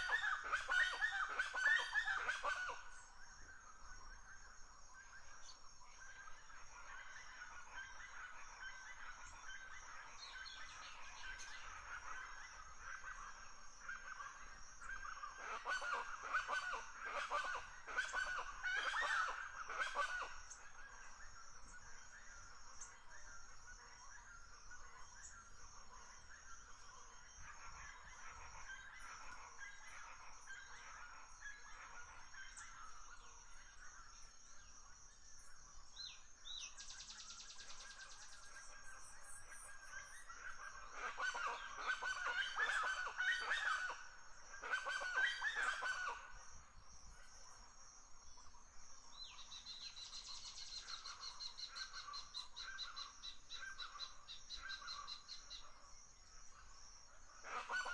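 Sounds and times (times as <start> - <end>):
flock of birds calling: 0.0 - 3.1, 6.2 - 21.8, 37.0 - 47.4, 57.4 - 57.9.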